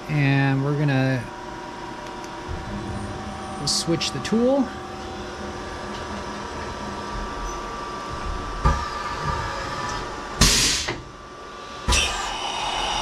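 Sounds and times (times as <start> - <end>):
machine humming: 0.0 - 13.0
loud air blast: 10.4 - 11.0.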